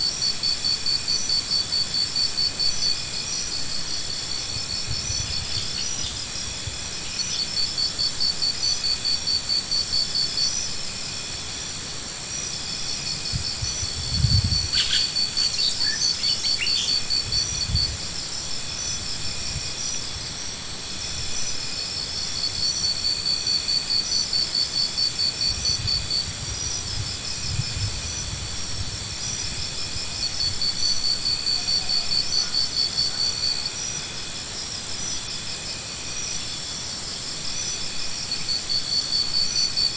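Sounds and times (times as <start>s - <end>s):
high insect drone: 0.0s - 39.9s
insects trilling: 0.0s - 39.9s.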